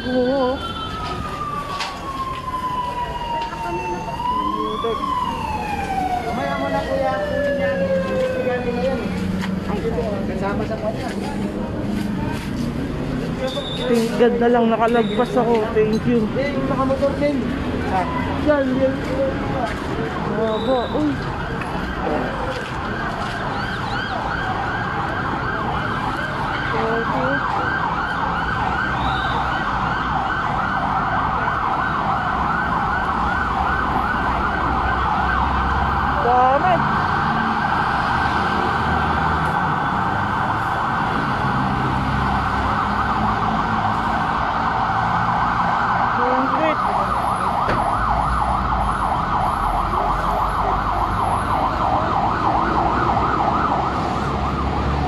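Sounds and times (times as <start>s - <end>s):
siren warbling: 0.0s - 9.2s, 20.3s - 55.0s
low traffic rumble: 0.0s - 55.0s.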